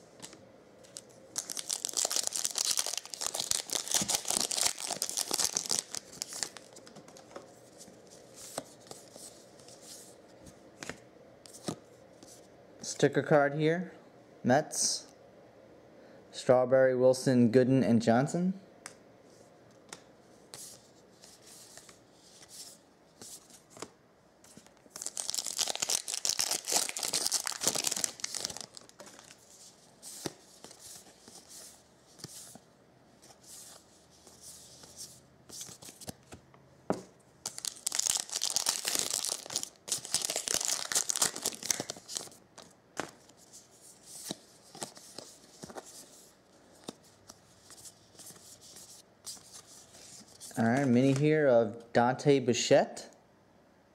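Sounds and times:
foil wrapper crinkling and tearing: 1.0 - 6.7, 24.9 - 29.4, 37.4 - 42.4.

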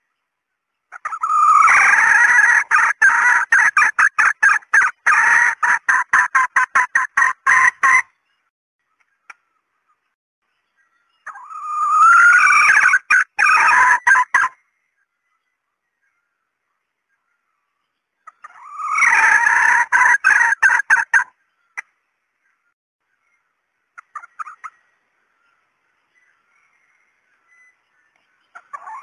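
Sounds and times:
hen cackling calls: 0.9 - 8.1, 11.2 - 14.6, 18.2 - 21.9, 28.5 - 29.0.

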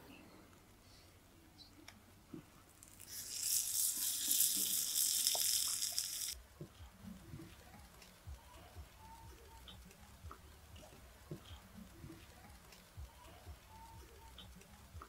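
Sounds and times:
water running: 2.7 - 8.0.

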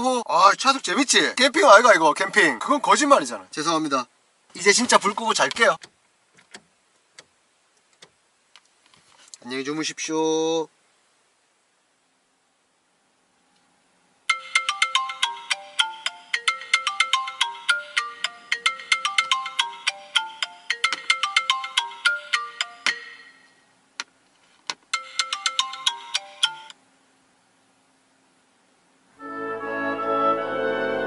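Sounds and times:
phone alarm ringtone: 14.3 - 23.5, 25.0 - 26.8.

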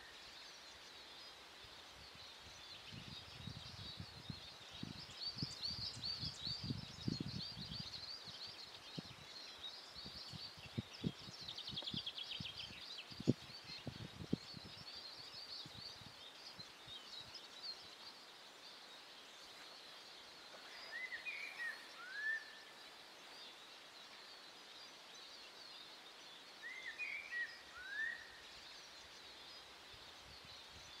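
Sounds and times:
small birds twittering: 0.0 - 31.0
whistled gliding bird notes: 20.6 - 22.8, 26.6 - 28.6.

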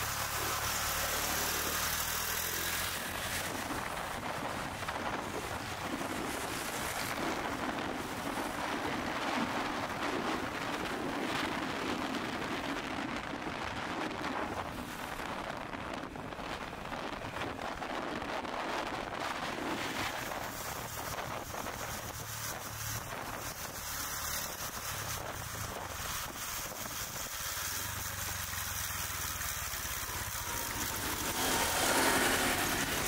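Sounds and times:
motorcycle engine and road noise: 0.0 - 33.0
wind on microphone: 2.9 - 27.5.

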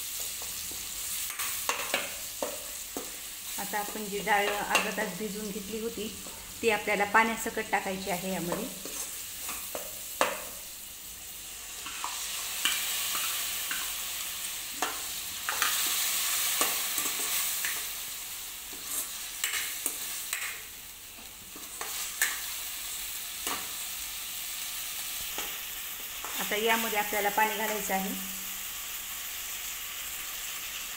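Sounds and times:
lentils sizzling in hot oil: 0.0 - 30.9.

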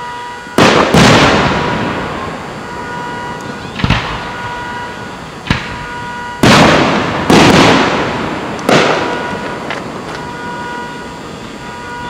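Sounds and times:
firework booms: 0.5 - 12.0
faint firework pops: 5.4 - 10.3.

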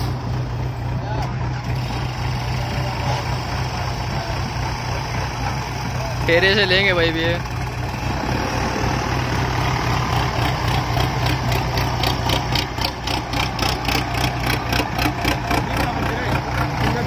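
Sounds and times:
tractor diesel engines running: 0.0 - 17.0.

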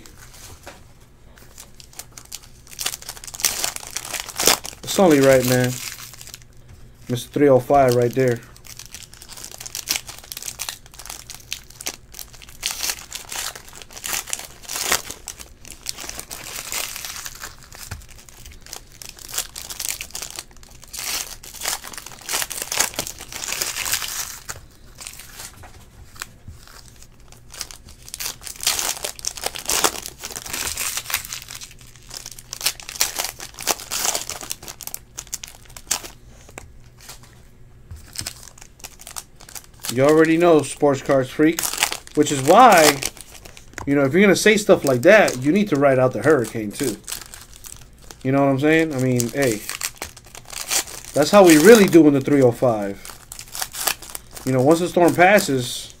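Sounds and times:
wrappers crinkling and tearing: 0.0 - 56.0
cards being handled: 35.8 - 47.4.

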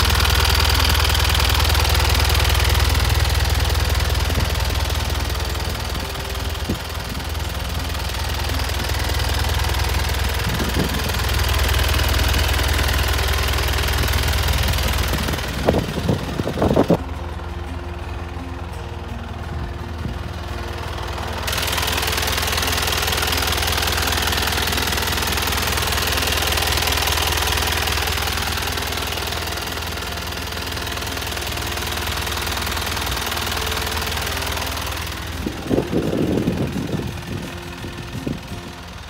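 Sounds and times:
truck engine idling: 0.0 - 39.0.

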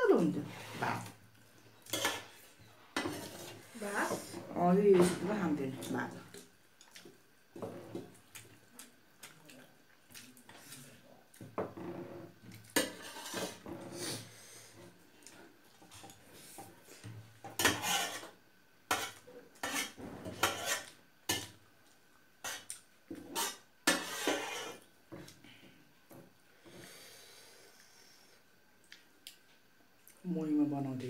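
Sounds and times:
spoons scraping steel plates: 17.6 - 18.3, 18.9 - 21.4.

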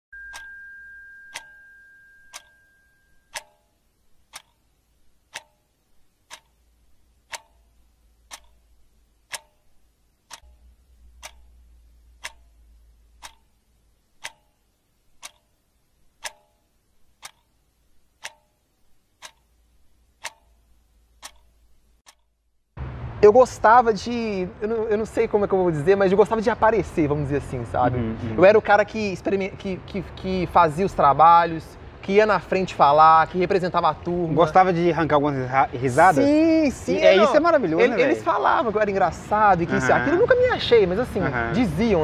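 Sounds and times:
steady high tone: 0.1 - 3.4
wall clock ticking: 0.2 - 0.6, 1.3 - 1.6, 2.3 - 22.5.

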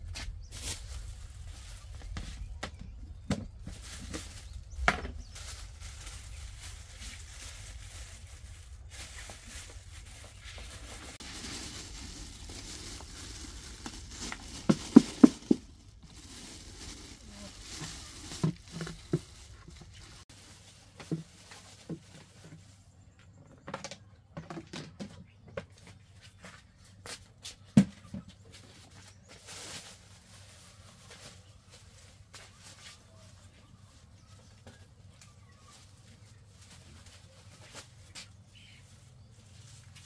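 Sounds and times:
rice rustling in plastic bag: 0.0 - 22.7, 28.8 - 40.0
plastic containers knocking: 13.8 - 15.8.

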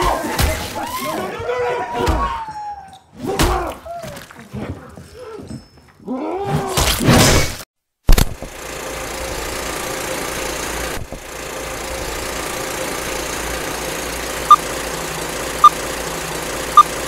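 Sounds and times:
mechanical whirring hum: 8.3 - 17.0.

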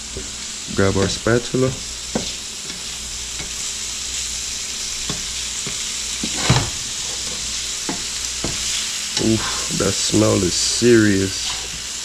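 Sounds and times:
fish sizzling in a frying pan: 0.0 - 12.0
spatula scraping a pan: 4.8 - 9.8, 11.3 - 11.9.

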